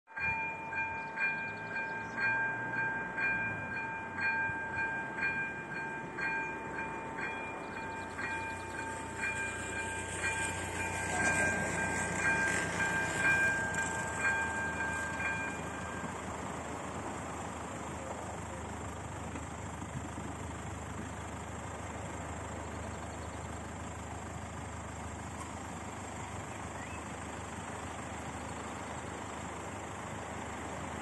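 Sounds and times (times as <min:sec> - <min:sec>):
level crossing bell ringing: 0:00.1 - 0:16.3
rushing noise: 0:06.5 - 0:17.4.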